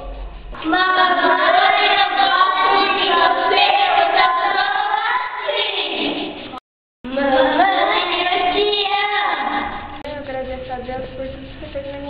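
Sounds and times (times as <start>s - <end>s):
children singing in unison: 0.6s - 6.4s.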